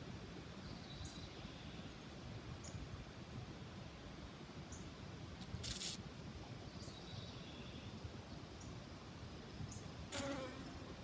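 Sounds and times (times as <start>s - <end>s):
rustling hisses: 5.4s - 6.0s.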